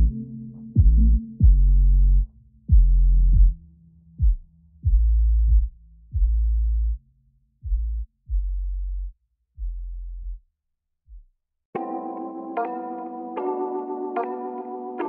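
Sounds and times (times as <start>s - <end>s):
electronic music with sub-bass: 0.0s - 7.0s
kick drum: 0.8s - 1.8s, 2.7s - 3.6s, 4.2s - 6.5s, 7.6s - 8.5s.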